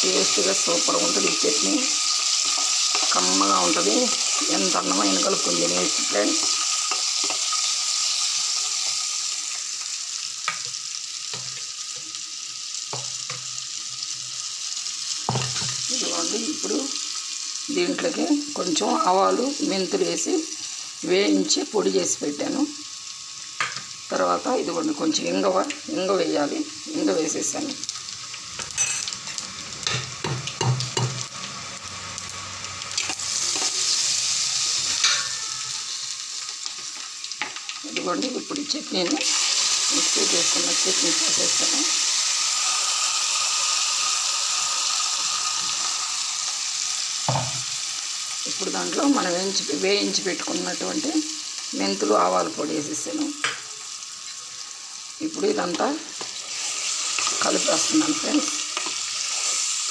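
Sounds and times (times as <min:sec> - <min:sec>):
oil sizzling in a pan: 0:00.0 - 0:59.9
spatula stirring in a pan: 0:01.5 - 0:03.6, 0:06.4 - 0:09.0, 0:33.0 - 0:35.5, 0:55.7 - 0:59.9.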